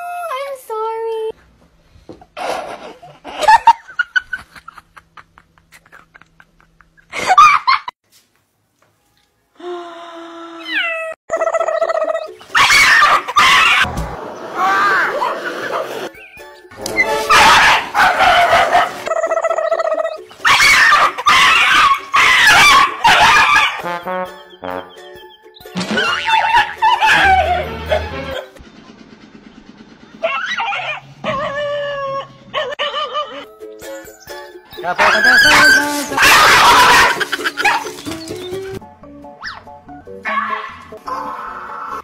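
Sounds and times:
person laughing: 2.4s - 7.9s, 35.8s - 37.9s
dogs yelping and barking: 11.0s - 23.9s, 26.0s - 28.6s, 30.2s - 33.5s, 34.8s - 38.5s, 39.3s - 42.0s.

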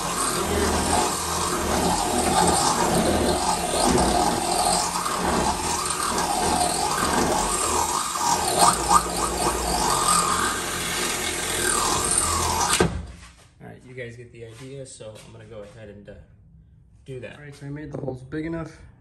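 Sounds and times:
cordless drill boring into metal: 0.0s - 13.0s.

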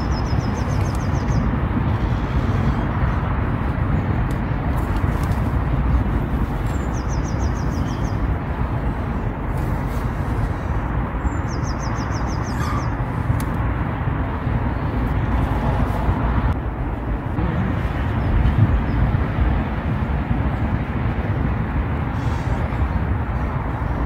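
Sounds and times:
wind buffeting microphone: 0.0s - 24.0s
bird trilling: 11.3s - 13.1s.

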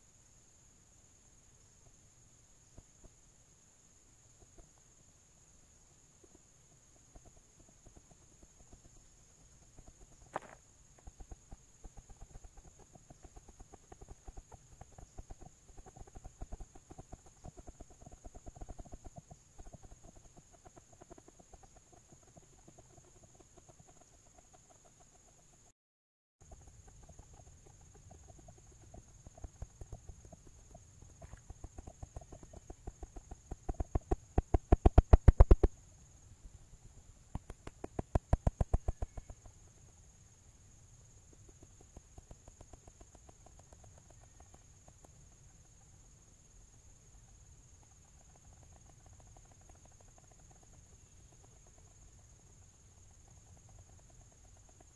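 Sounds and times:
rapid dull knocks: 26.4s - 35.7s.

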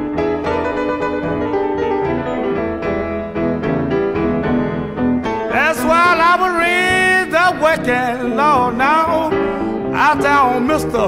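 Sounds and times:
blues piano chords: 0.0s - 11.0s
man singing: 5.5s - 11.0s.

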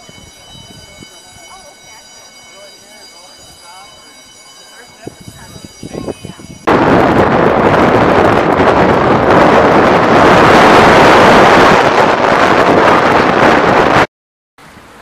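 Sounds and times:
wind buffeting microphone: 0.0s - 2.0s, 4.8s - 14.1s.

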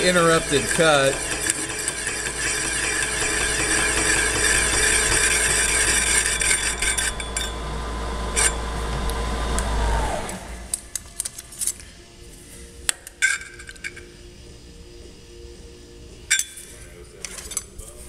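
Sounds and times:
cutter scraping steel: 0.0s - 9.7s
spindle motor hum and whine: 0.0s - 18.0s.

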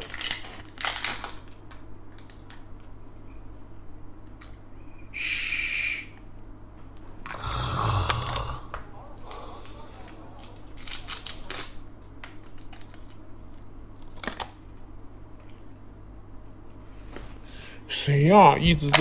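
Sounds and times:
person snoring: 7.2s - 10.0s.

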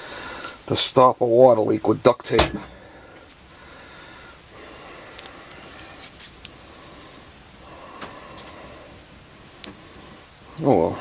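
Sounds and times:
low steady background noise: 0.0s - 11.0s
faint rustling of tape: 5.0s - 6.7s.

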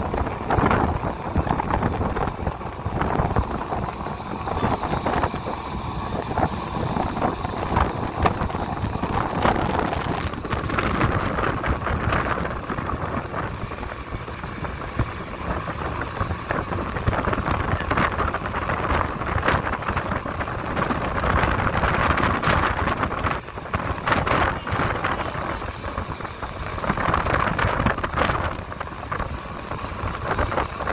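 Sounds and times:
sea and ship noise: 0.0s - 30.9s
wind buffeting microphone: 0.0s - 30.9s.

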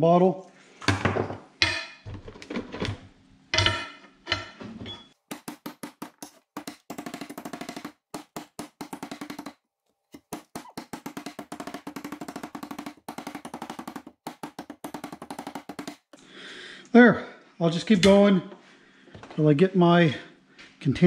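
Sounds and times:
hammer crushing stone on metal: 1.6s - 2.3s, 3.5s - 4.6s.

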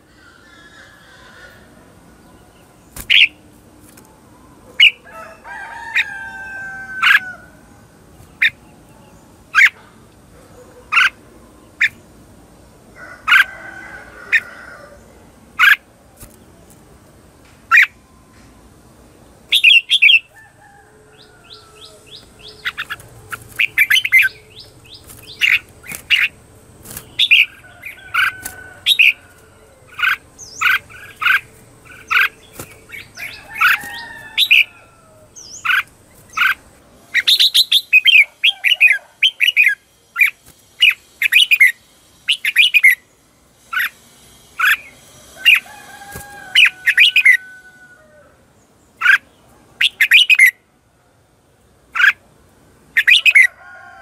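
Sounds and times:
bird chirping loudly: 19.5s - 20.4s, 21.1s - 43.1s, 46.4s - 47.6s, 49.0s - 50.6s, 53.0s - 53.5s.

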